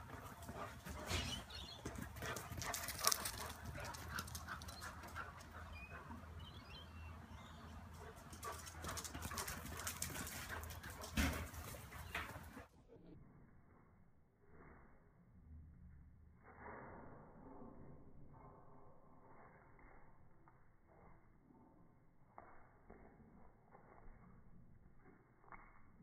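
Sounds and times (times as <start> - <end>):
dogs scuffling: 0.0 - 5.6.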